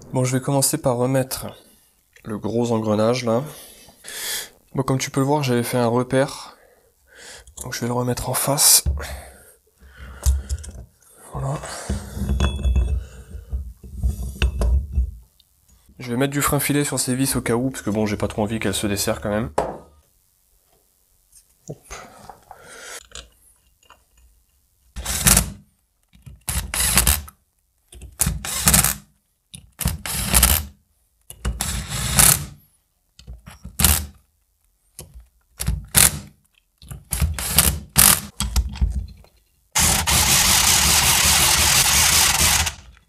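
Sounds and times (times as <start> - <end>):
cordless driver short bursts: 39.8 - 42.9
power tool running steadily: 39.8 - 42.9.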